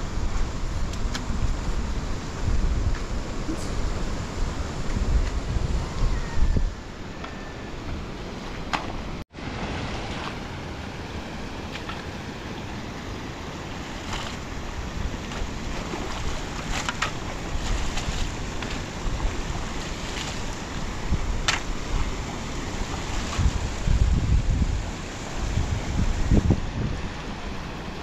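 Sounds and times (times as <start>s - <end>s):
muddy water rushing: 0.0s - 28.0s
wind buffeting microphone: 0.0s - 28.0s
shovel scraping wet mud: 13.8s - 14.6s, 15.2s - 20.6s.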